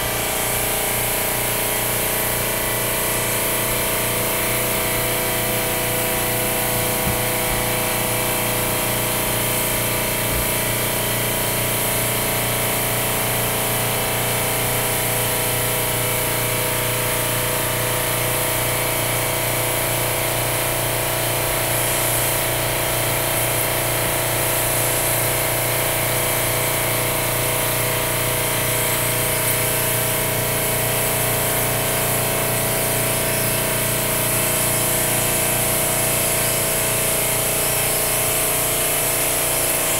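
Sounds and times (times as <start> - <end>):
air compressor motor hum: 0.0 - 39.9
airbrush hissing: 21.5 - 33.6.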